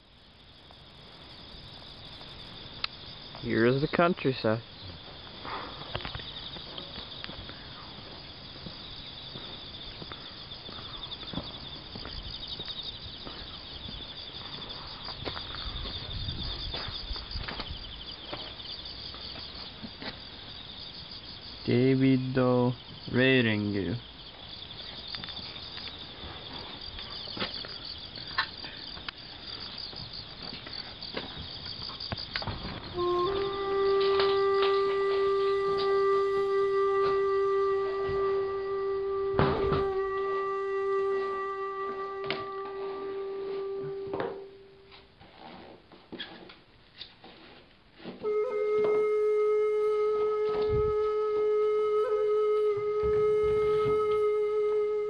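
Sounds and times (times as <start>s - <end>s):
insects chirring: 0.0s - 47.1s, 47.7s - 55.0s
low musical tone: 33.0s - 45.0s.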